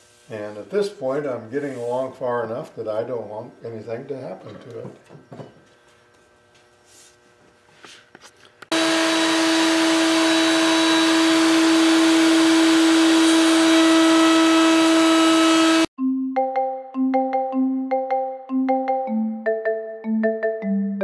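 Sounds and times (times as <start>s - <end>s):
wood router whining: 8.7s - 15.9s.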